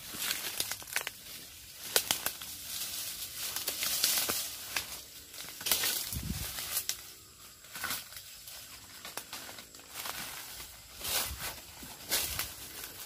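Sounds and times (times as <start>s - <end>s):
twigs snapping: 0.0s - 7.0s
dry stems crackling: 0.0s - 13.0s
rustling leaves: 0.0s - 13.0s.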